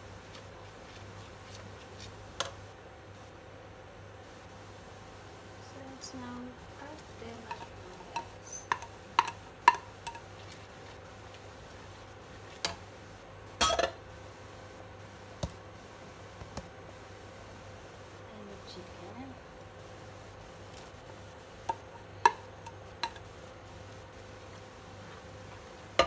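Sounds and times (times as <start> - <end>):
spatula tapping and scraping pan: 6.9 - 11.0, 12.6 - 12.8, 21.6 - 23.3.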